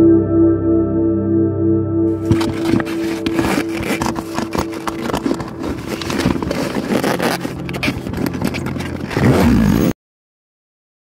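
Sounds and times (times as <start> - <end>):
gear scraping inside bag: 2.2 - 9.9
zipper being pulled: 2.2 - 10.0.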